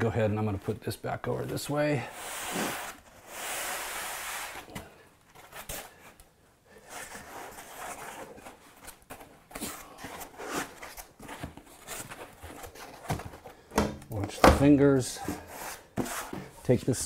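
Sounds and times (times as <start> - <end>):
foam blocks scraping: 1.5 - 4.8
knocks and rustles: 10.9 - 16.6.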